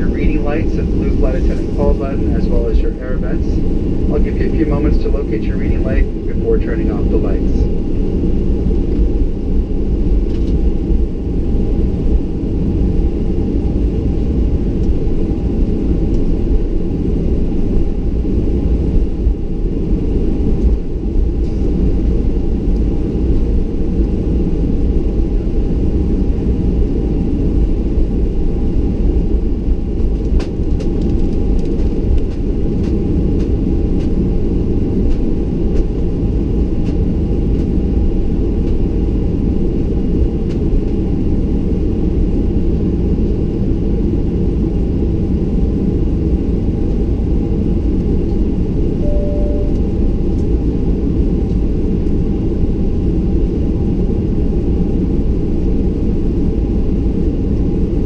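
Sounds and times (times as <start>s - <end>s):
airframe and landing gear rumble: 0.0s - 9.4s
jet engines idling hum: 0.0s - 58.0s.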